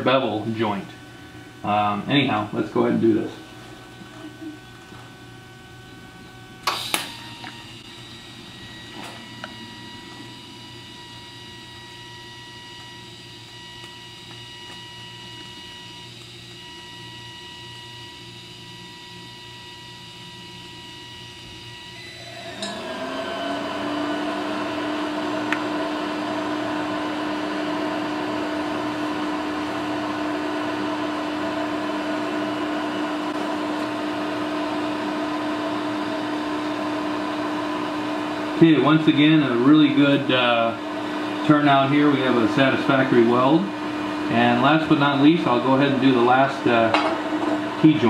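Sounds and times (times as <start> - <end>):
welder hum: 0.0 - 48.0.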